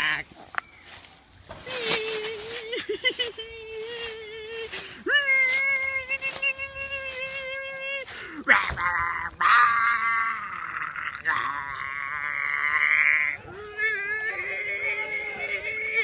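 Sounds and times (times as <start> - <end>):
quavering bleat-like calls: 0.0 - 0.3.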